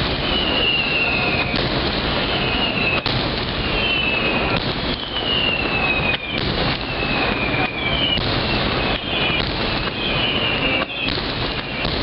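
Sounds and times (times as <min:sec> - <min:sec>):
firework shells bursting: 0:00.0 - 0:12.0
firework whistles: 0:00.0 - 0:12.0.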